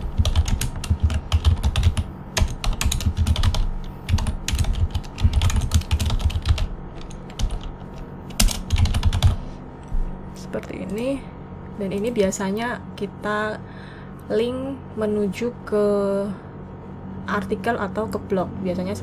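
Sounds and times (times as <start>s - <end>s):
computer keyboard typing: 0.0s - 9.4s.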